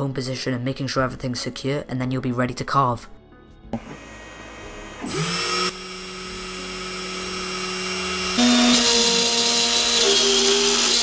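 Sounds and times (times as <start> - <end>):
spindle motor whining: 3.8 - 11.0.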